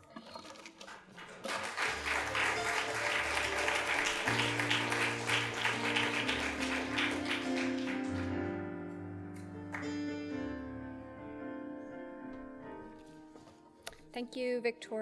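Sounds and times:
audience applauding: 0.0 - 8.6, 9.6 - 10.0
instrumental music: 1.8 - 14.2.

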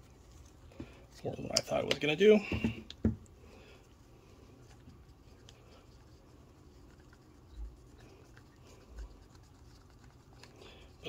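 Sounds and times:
faint scratching and tapping: 0.0 - 11.0.

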